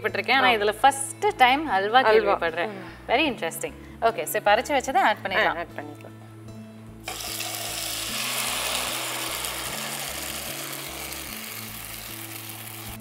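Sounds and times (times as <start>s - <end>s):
paste sizzling in hot pan: 7.0s - 13.0s.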